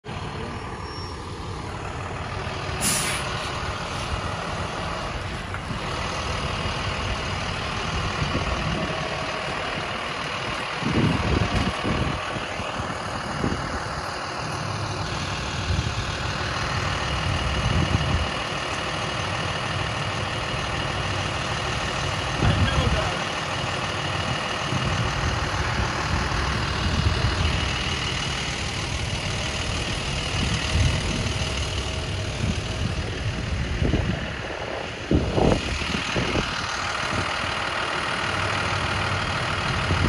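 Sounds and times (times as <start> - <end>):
heavy truck engine: 0.0 - 40.0
low rumbles: 0.0 - 40.0
short sharp hiss: 2.8 - 4.1.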